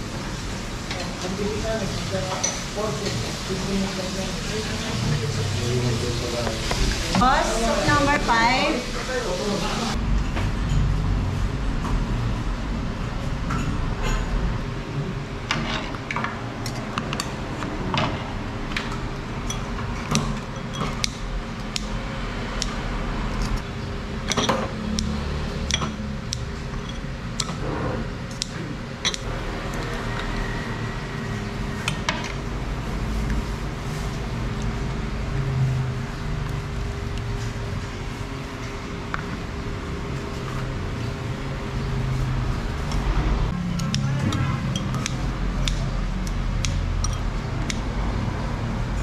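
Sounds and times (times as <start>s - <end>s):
metal utensils clinking on bowls: 2.2s - 3.3s, 18.9s - 21.2s, 24.3s - 25.1s, 25.7s - 27.6s, 28.3s - 29.3s, 43.8s - 45.2s, 47.0s - 47.3s.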